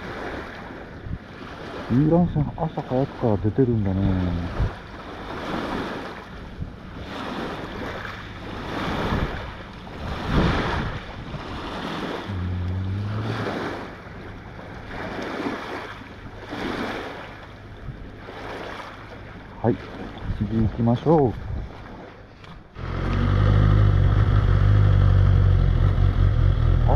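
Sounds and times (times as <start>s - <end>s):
lake water lapping on shore: 0.0s - 25.2s
wind on microphone: 5.7s - 17.0s, 21.3s - 21.8s
low hum: 12.2s - 15.3s, 22.3s - 26.9s
short low tone: 12.3s - 14.4s.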